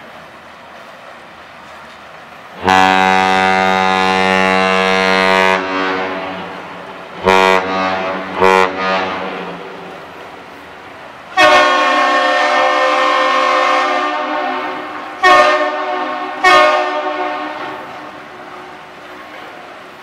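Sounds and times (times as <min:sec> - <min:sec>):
ship horn blasts: 0:02.6 - 0:10.5, 0:11.3 - 0:18.9.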